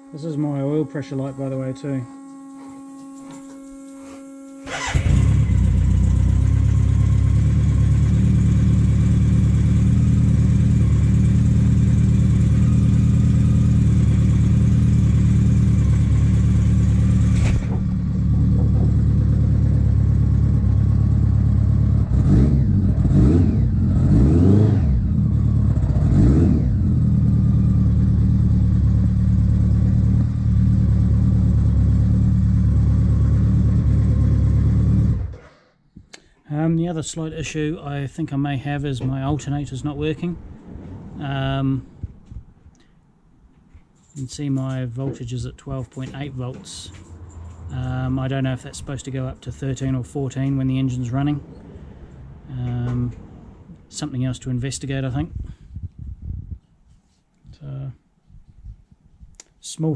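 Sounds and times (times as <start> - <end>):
motorcycle engine starting and idling: 1.0 - 35.8
engine revving: 4.2 - 35.5.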